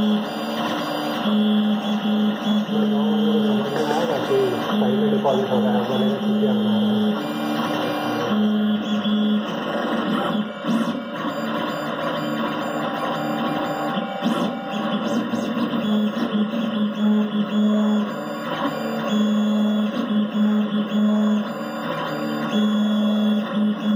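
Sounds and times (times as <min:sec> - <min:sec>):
stepper motors humming: 0:00.0 - 0:23.9.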